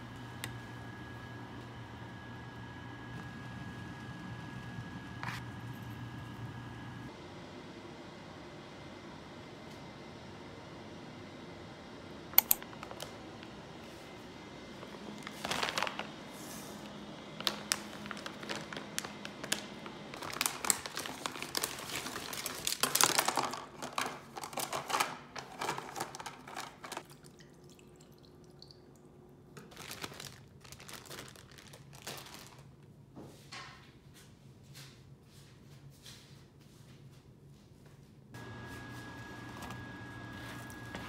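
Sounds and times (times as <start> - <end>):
plastic packaging crinkling: 12.6 - 13.2, 14.8 - 16.2, 17.3 - 27.0, 29.6 - 32.8.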